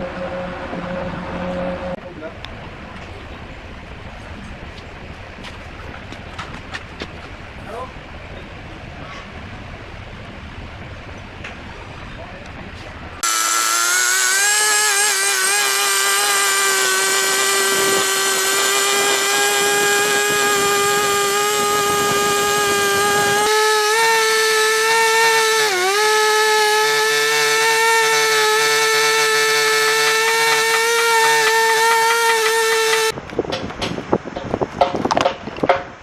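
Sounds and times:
chainsaw cutting log: 13.2s - 33.2s.

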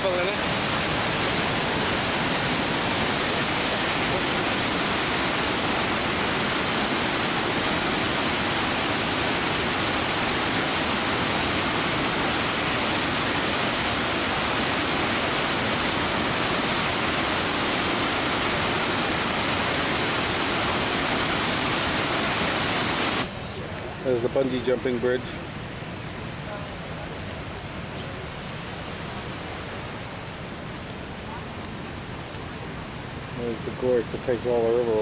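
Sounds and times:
waterfall rushing: 0.0s - 25.5s.

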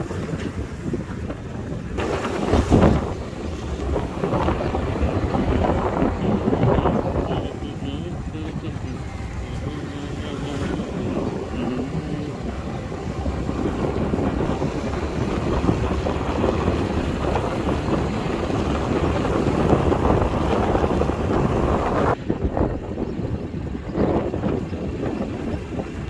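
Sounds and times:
road noise: 0.0s - 26.0s
wind buffeting microphone: 0.0s - 26.0s
scooter engine: 2.0s - 22.2s.

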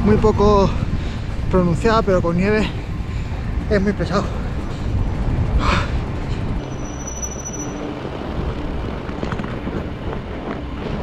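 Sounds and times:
wind buffeting microphone: 0.0s - 6.7s
bike tyres rumbling: 0.0s - 11.0s
thin high tone: 6.6s - 8.0s.

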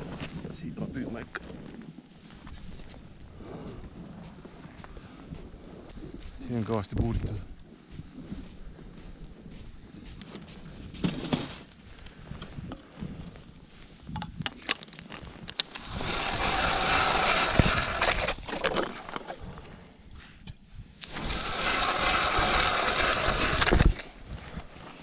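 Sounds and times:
ice auger grinding ice: 15.6s - 19.6s, 21.0s - 25.0s.

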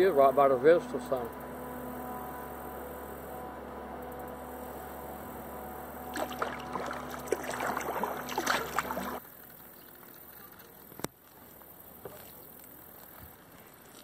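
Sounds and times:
steady hum: 0.0s - 9.2s
kayak paddle splashing water: 6.0s - 9.2s.

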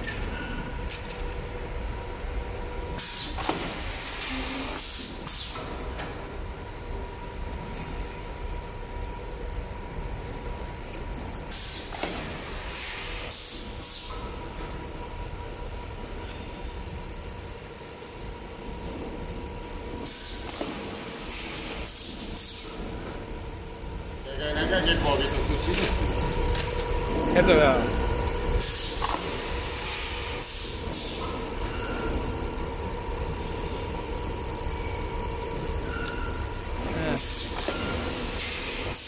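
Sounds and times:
machine running with high whine: 0.0s - 39.0s
short pneumatic hisses: 3.0s - 5.9s, 11.5s - 14.4s, 20.0s - 22.9s, 28.6s - 31.4s.

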